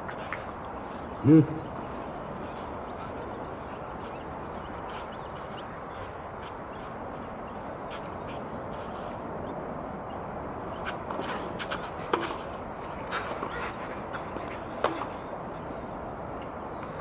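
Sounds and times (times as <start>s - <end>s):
outdoor background noise: 0.0s - 17.0s
racquets hitting tennis ball: 10.8s - 15.3s.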